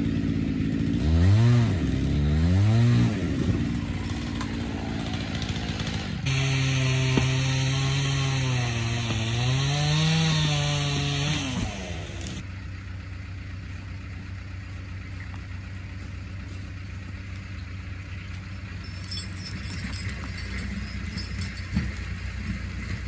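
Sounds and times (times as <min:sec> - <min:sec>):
chainsaw cutting wood: 0:00.0 - 0:12.4.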